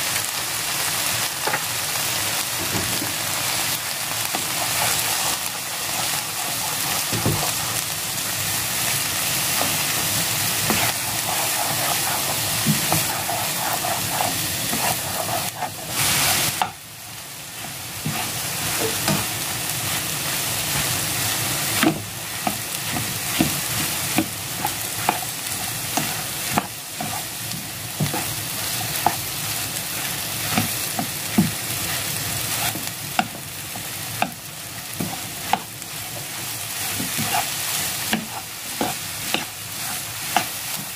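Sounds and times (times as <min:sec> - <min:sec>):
food sizzling in a frying pan: 0:00.0 - 0:40.9
spatula scraping a pan: 0:04.2 - 0:07.8, 0:09.5 - 0:16.8, 0:18.0 - 0:20.1, 0:21.7 - 0:33.4, 0:34.2 - 0:40.9.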